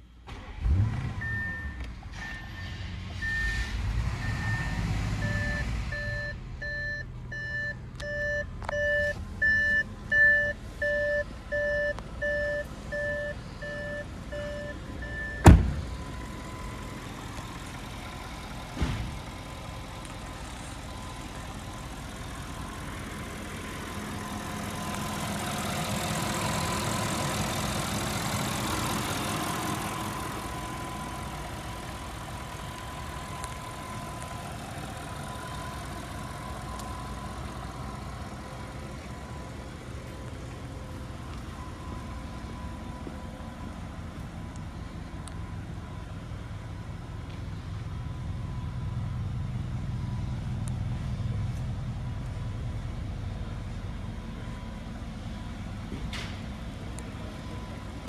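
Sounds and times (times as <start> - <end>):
car engine starting and idling: 0.0 - 58.0
two-tone warning chime beeping: 4.2 - 16.8.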